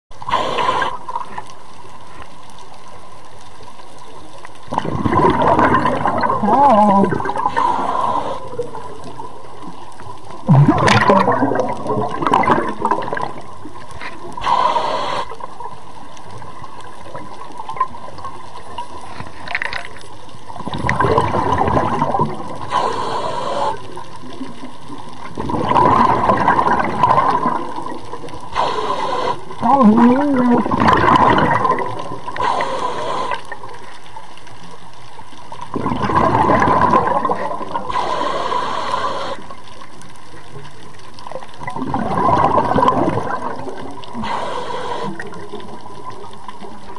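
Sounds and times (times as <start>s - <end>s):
regulator hiss: 0.2s - 1.2s, 7.4s - 8.7s, 14.4s - 15.5s, 22.6s - 24.0s, 28.5s - 29.8s, 32.3s - 33.6s, 37.9s - 39.6s, 44.2s - 45.4s
bubbling exhaled air underwater: 0.2s - 1.4s, 4.6s - 15.7s, 20.5s - 34.0s, 35.6s - 39.9s, 40.7s - 46.9s.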